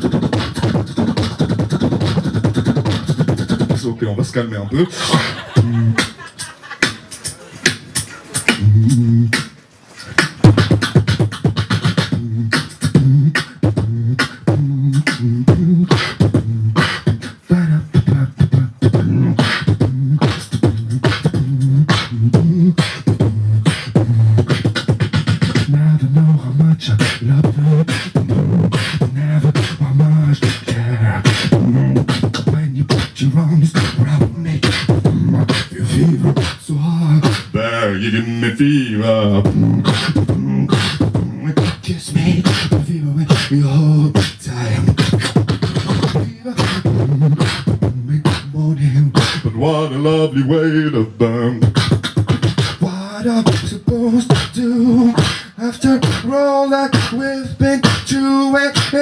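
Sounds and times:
human beatbox: 0.0 - 59.0
hummed bass line: 10.4 - 37.7, 38.5 - 49.9.

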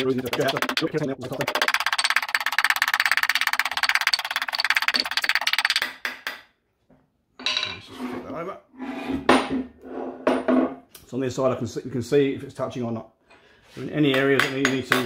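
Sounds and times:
hammer tapping rapidly on steel: 0.0 - 6.5, 14.1 - 15.0
metal plates knocking and scraping: 7.4 - 8.2.

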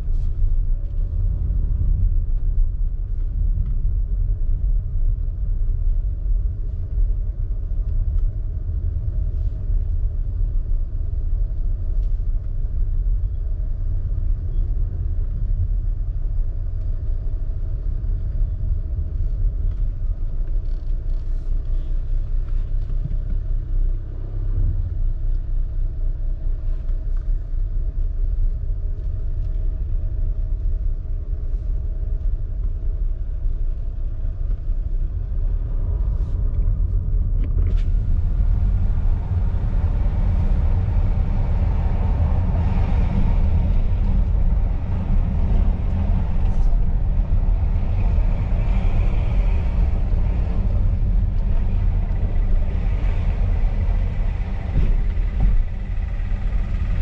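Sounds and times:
car engine and tyres rumbling: 0.0 - 57.0.

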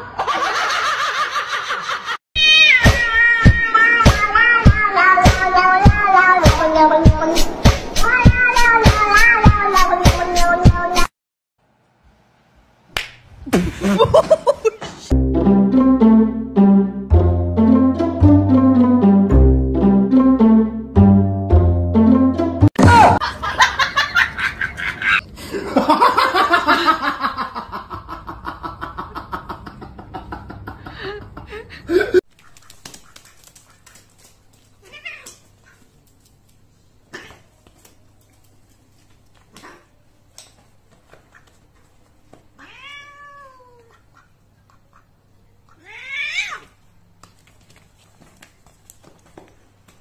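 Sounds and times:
cat yowling and meowing: 2.4 - 6.4, 42.6 - 43.9, 45.8 - 46.7.

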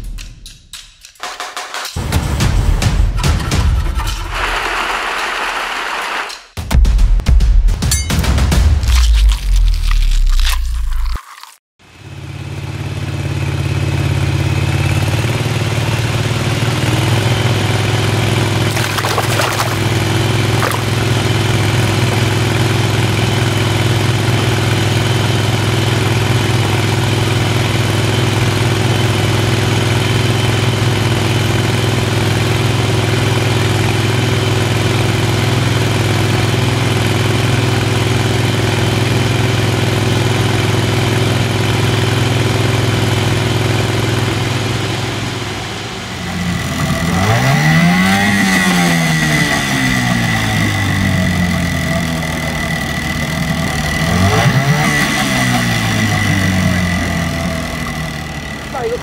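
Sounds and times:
outboard motor running: 12.1 - 47.2, 49.2 - 59.0.

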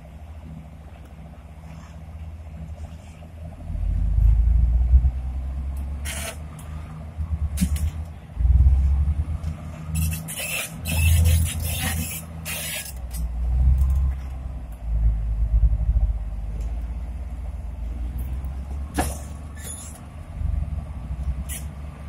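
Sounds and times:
diesel engines rumbling: 0.0 - 22.0.

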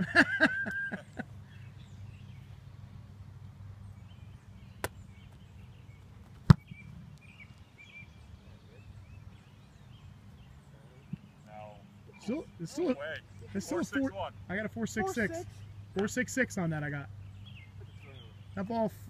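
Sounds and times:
foot kicking football: 6.2 - 6.8.

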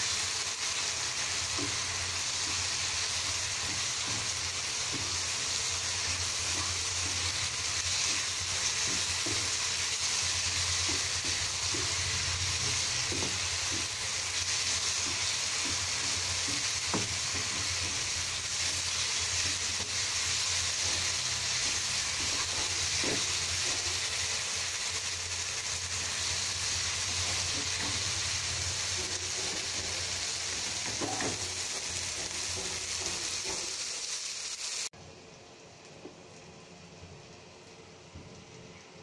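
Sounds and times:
beans sizzling in oil: 0.0 - 35.0
spatula scraping and knocking pan: 1.4 - 24.6, 25.9 - 33.8.

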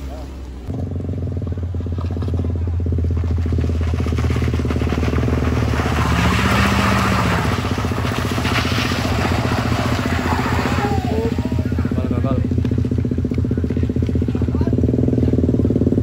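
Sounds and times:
car engine pulling uphill: 0.0 - 16.0
motorbike engine: 0.0 - 16.0
tyres crunching on gravel: 2.2 - 14.6.

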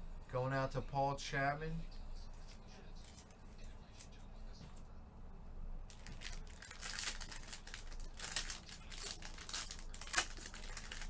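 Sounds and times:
foil wrapper tearing and crinkling: 5.9 - 11.0.

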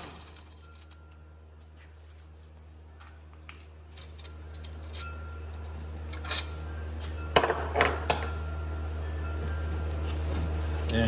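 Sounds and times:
metal parts clinking and clanking: 0.0 - 1.7, 3.0 - 6.6
steady low hum: 0.0 - 11.0.

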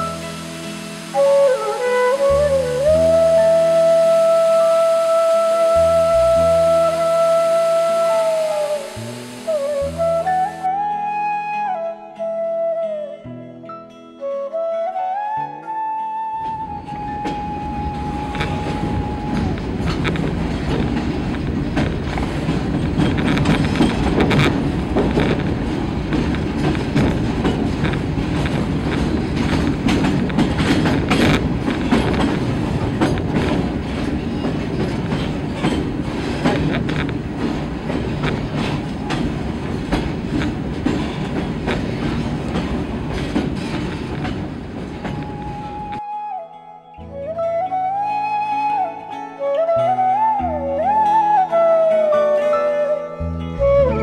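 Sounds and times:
train wheels rumbling: 0.0 - 10.7, 16.4 - 46.0
held flute note: 0.0 - 20.4, 45.0 - 54.0
wheels clacking over rail joints: 16.4 - 46.0.

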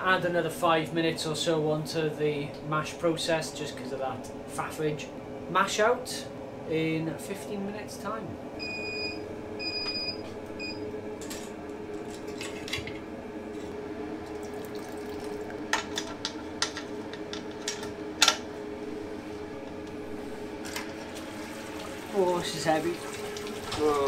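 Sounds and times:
pump humming: 13.2 - 17.4, 18.0 - 24.0.

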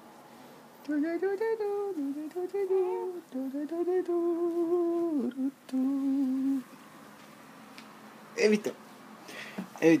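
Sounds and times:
woman humming: 1.0 - 6.6.

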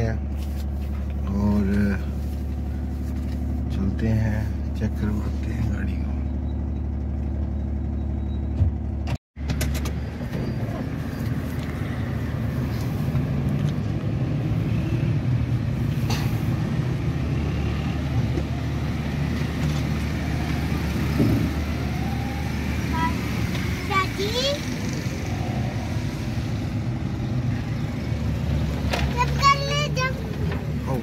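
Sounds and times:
car engine idling: 0.0 - 14.0
car engine rumble and road noise: 0.0 - 31.0.

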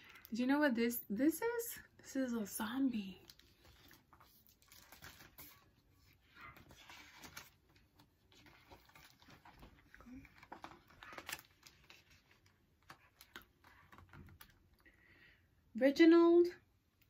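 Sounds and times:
book pages turning: 3.2 - 14.6.

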